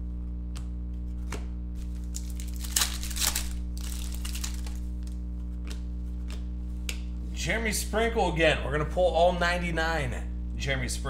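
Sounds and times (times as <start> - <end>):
steady low hum: 0.0 - 11.0
wrapper crinkling and tearing: 1.8 - 5.2.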